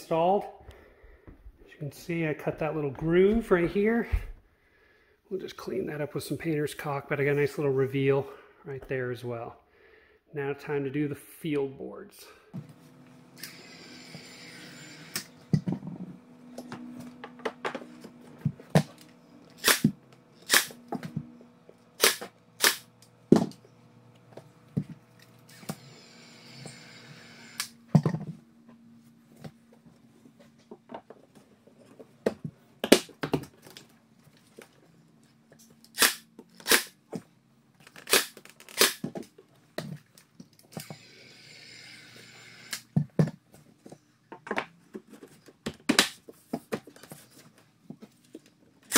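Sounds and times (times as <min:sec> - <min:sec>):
pin nailer firing: 0:19.6 - 0:20.8, 0:22.0 - 0:22.9, 0:35.9 - 0:37.0, 0:38.0 - 0:39.1.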